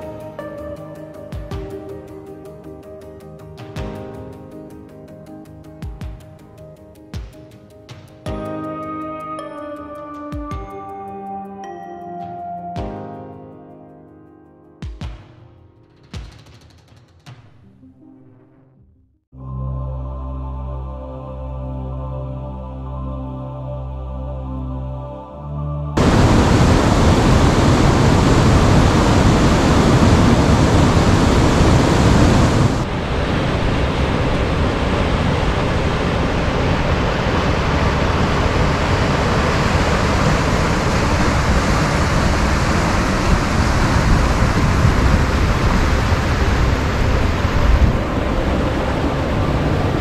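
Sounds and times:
river rushing over rapids: 0:26.0 - 0:50.0.

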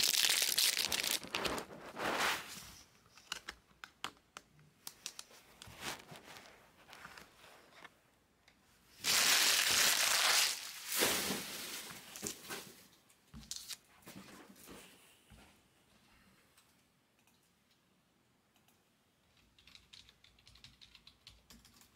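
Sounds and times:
card packs crinkling: 0:00.0 - 0:01.9, 0:09.0 - 0:12.3.

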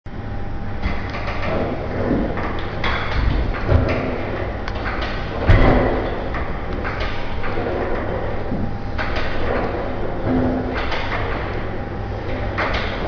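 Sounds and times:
steady low hum: 0:00.1 - 0:13.0
sharp knocks: 0:00.8 - 0:08.2
weight machine clanking and sliding: 0:00.8 - 0:13.0.

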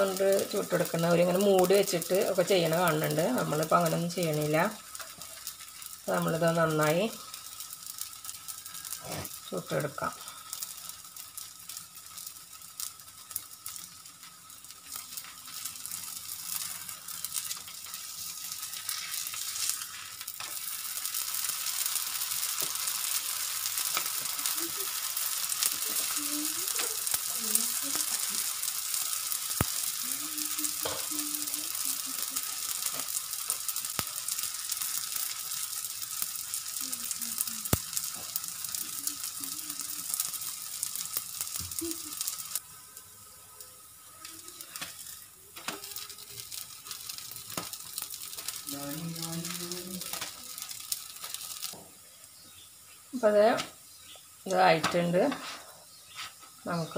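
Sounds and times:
oil sizzling on a flat pan: 0:00.0 - 0:56.9.

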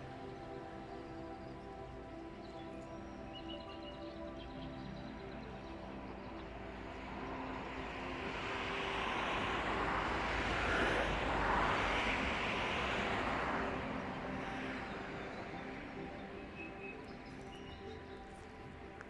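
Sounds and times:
faint background music: 0:00.0 - 0:19.0
vehicle passing by: 0:07.0 - 0:16.2.

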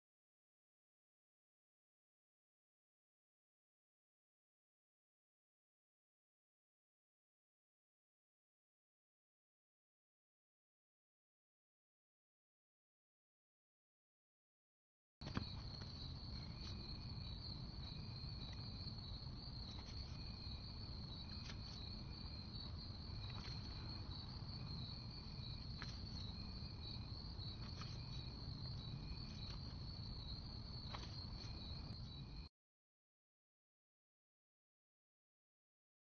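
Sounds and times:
high cricket trill: 0:15.2 - 0:32.5
lower pulsed insect call: 0:15.2 - 0:32.5
low background rumble: 0:15.4 - 0:32.5.

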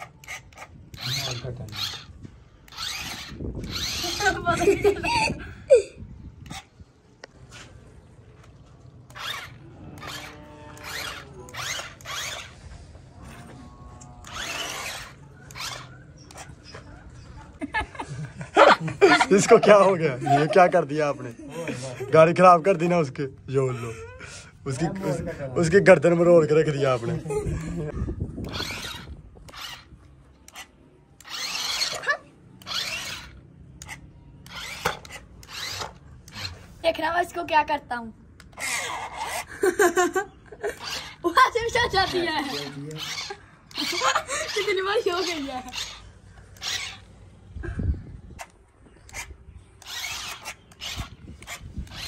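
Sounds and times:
toy car electric motor whining: 0:00.0 - 0:05.3, 0:06.4 - 0:06.7, 0:08.9 - 0:17.6, 0:28.2 - 0:37.5, 0:38.4 - 0:52.0.

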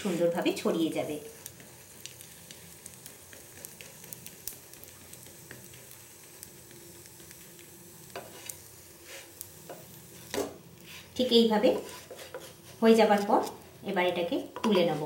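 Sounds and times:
crepe sizzling on griddle: 0:00.0 - 0:15.0
scrape on griddle: 0:03.0 - 0:05.9, 0:08.1 - 0:13.7.

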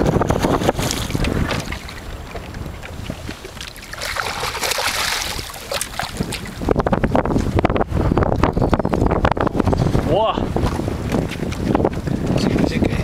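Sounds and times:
wind buffeting microphone: 0:00.0 - 0:13.0
fish splashing at water surface: 0:00.7 - 0:06.6.

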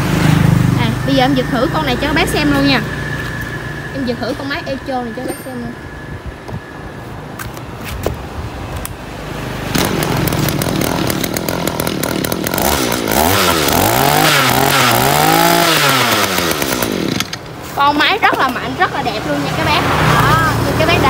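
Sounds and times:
brush cutter engine revving: 0:09.6 - 0:17.8.

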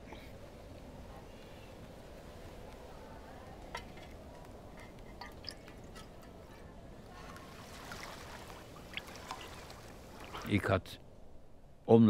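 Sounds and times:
liquid dripping: 0:04.8 - 0:06.3, 0:07.7 - 0:10.5.

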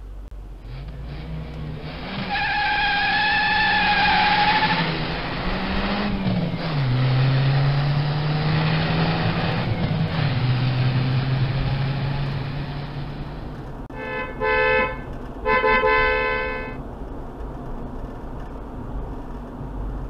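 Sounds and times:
car engine revving: 0:00.6 - 0:16.8
car tyres squealing: 0:01.9 - 0:06.8.

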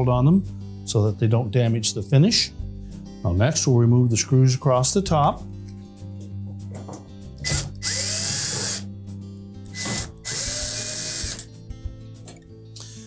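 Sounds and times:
cordless drill motor spinning up: 0:07.4 - 0:08.9, 0:09.7 - 0:11.5.

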